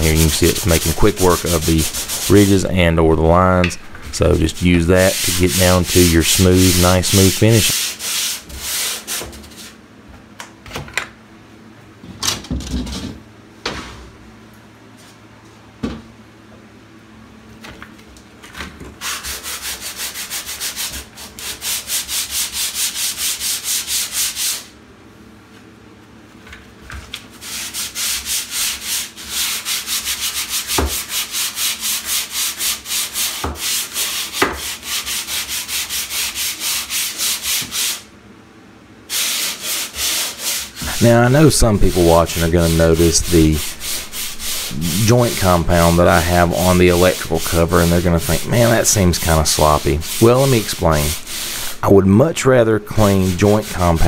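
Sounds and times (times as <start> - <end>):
sandpaper scratching on plaster: 0.0 - 2.8, 3.8 - 9.8, 19.0 - 24.7, 27.3 - 38.1, 39.1 - 54.0.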